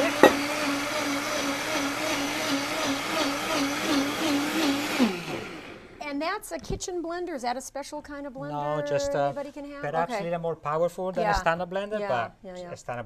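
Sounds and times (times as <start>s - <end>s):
blender motor running: 0.0s - 6.0s
blender motor winding down: 0.0s - 6.0s.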